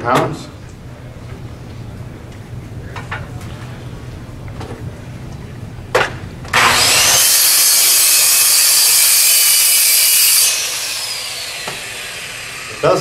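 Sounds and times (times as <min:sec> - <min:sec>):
circular saw cutting wood: 0:06.5 - 0:13.0.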